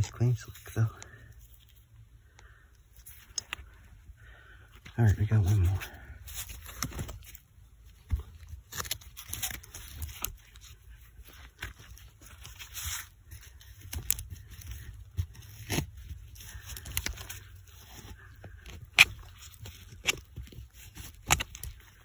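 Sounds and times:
hand digging in soil: 4.8 - 22.0.

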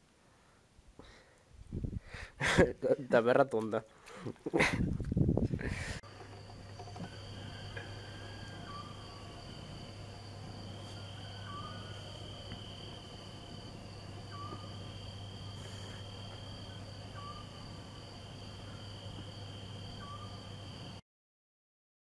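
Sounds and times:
low steady hum: 5.7 - 21.0
crickets trilling: 5.8 - 21.0
short chirping call: 17.1 - 17.6, 20.0 - 20.4.

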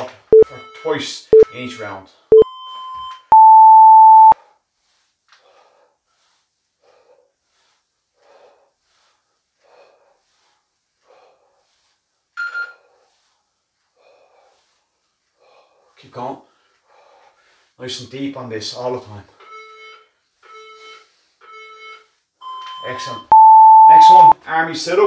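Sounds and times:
timer beep: 2.3 - 4.4, 21.5 - 24.4
person breathing: 4.4 - 17.8.

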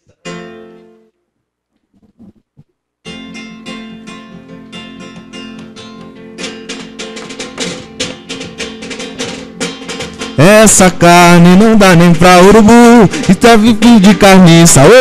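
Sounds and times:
acoustic guitar strummed: 0.0 - 1.1, 3.0 - 15.0
drum hits: 5.0 - 15.0.

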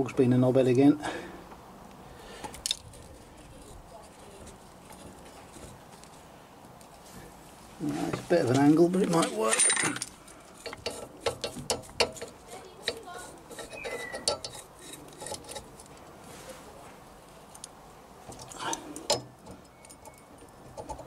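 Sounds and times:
metal tools clinking: 8.6 - 16.0, 18.3 - 21.0.

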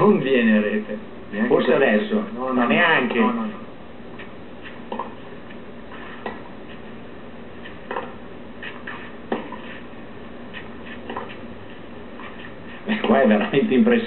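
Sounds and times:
television broadcast hiss: 0.0 - 14.0
tennis racket striking ball: 6.2 - 6.5, 7.7 - 9.8
faint ball taps: 6.2 - 6.8.

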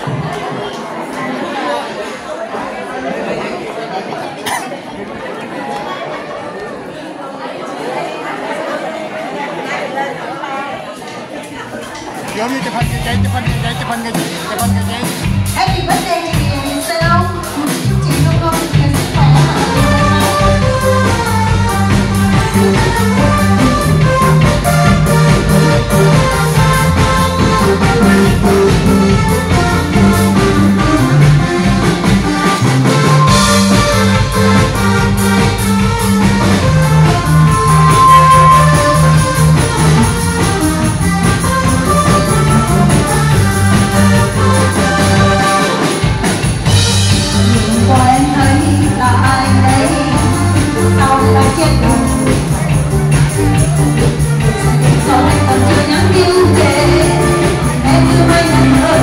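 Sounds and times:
live band playing: 11.7 - 59.0
guitar: 12.2 - 59.0
loud instrumental music: 12.3 - 59.0
steady drum beat: 12.4 - 59.0.

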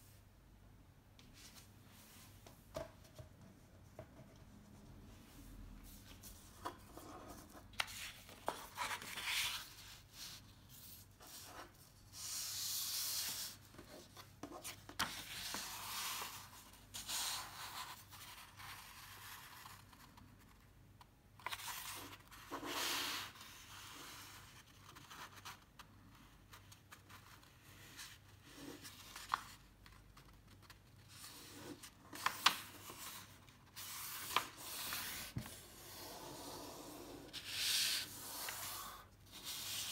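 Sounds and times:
paper rustling: 28.8 - 35.6.

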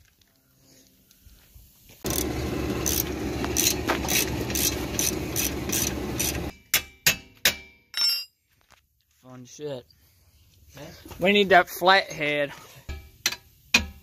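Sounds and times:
power tool running with ratcheting: 2.1 - 6.5.

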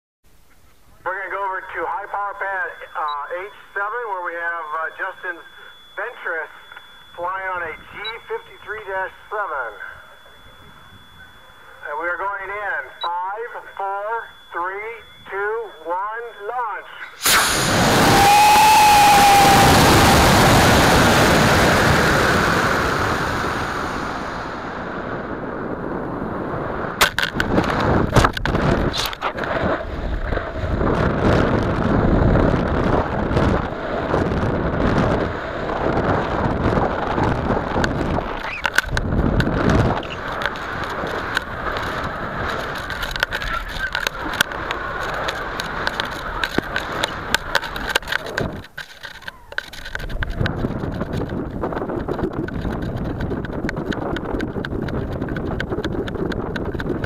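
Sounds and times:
wind rushing past camera: 17.2 - 57.0.

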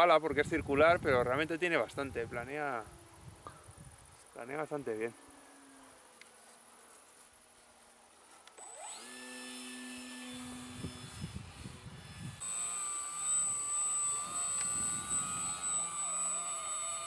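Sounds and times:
model plane motor whining: 8.6 - 17.0.

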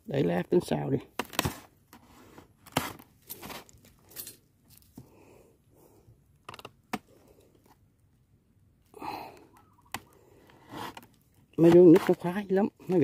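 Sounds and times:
handling clicks and scrapes: 1.1 - 5.0, 9.9 - 13.0.

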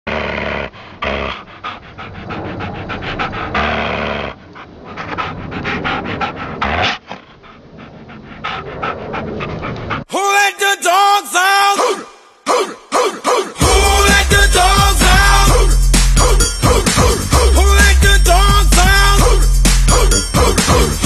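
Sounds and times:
dogs fighting: 0.1 - 10.1
music: 12.5 - 21.0.

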